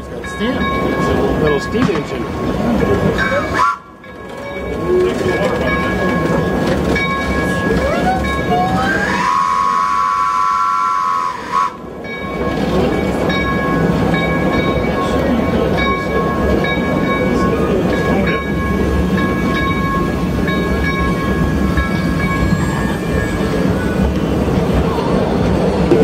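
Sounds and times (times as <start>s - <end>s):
steam locomotive running: 0.0s - 26.0s
steam whistle: 3.5s - 3.9s, 7.8s - 11.8s.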